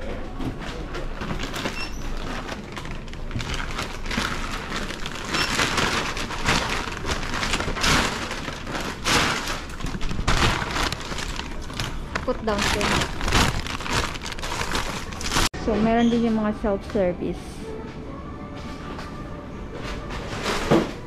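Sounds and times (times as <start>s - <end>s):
shopping bag rustling and crinkling: 0.6s - 16.6s.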